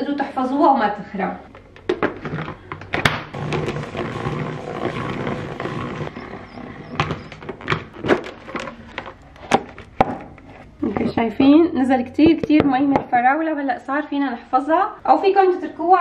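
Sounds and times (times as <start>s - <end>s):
salad spinner whirring: 3.4s - 7.4s
plastic knocks and clicks: 6.9s - 10.2s.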